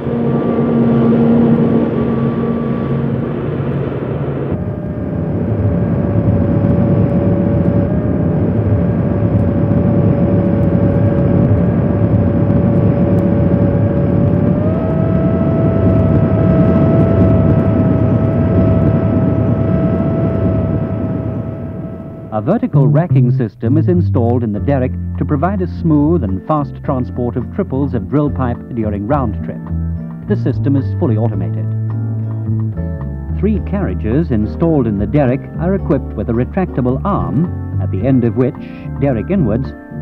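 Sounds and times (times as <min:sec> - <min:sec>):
machinery whining tone: 0:00.0 - 0:26.6
heavy machinery drone: 0:00.0 - 0:40.0.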